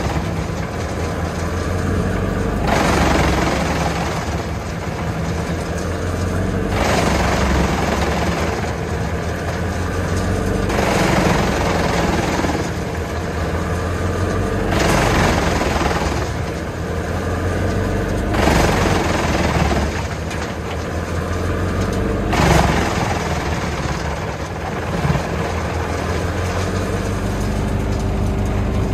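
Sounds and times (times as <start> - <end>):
tractor engine running: 0.0 - 28.9
wood chipper chipping logs: 0.0 - 28.9.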